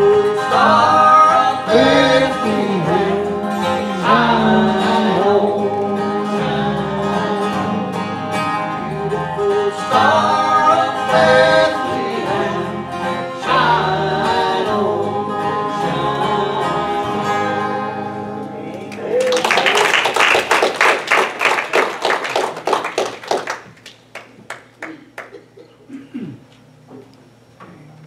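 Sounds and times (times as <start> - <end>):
people singing: 0.0 - 18.6
congregation applauding: 18.8 - 25.6.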